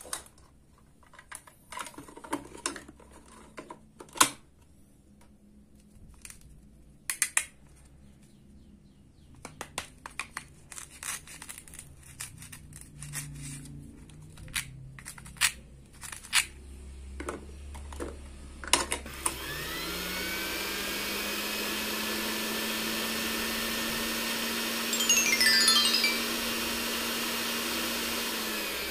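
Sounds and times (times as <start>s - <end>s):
toy blender motor whine: 19.1s - 28.9s.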